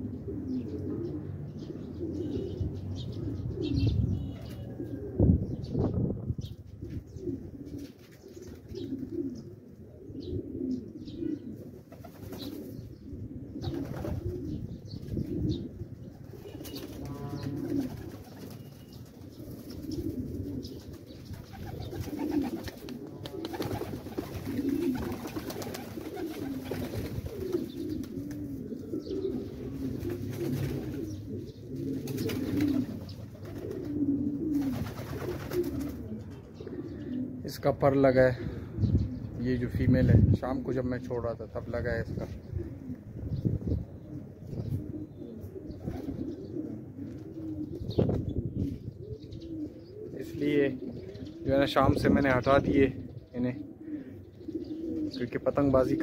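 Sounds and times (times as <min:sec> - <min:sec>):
pigeons cooing: 0:00.0 - 0:56.0
wings fluttering: 0:11.8 - 0:12.8, 0:13.6 - 0:15.3, 0:16.1 - 0:28.6, 0:29.8 - 0:36.1.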